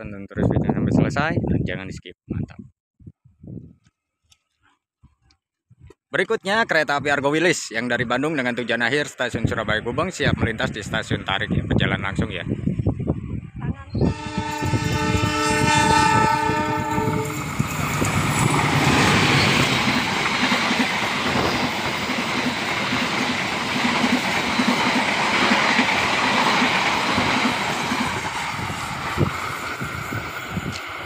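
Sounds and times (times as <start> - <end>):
train horn chord: 14.0 - 17.5
train wheels rumbling on rails: 14.0 - 31.0.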